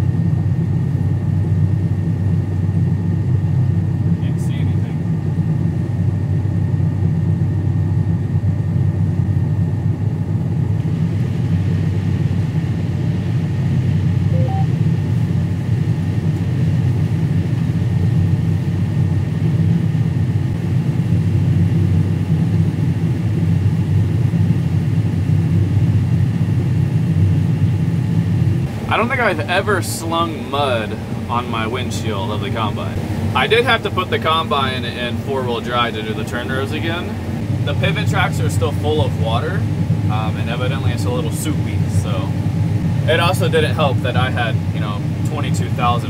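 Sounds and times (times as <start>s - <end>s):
combine harvester engine drone: 0.0s - 46.0s
high whine: 14.1s - 14.9s, 28.4s - 46.0s.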